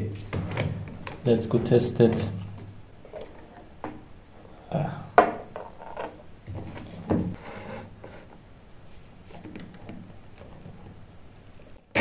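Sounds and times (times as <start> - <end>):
objects rubbing: 5.4 - 9.4.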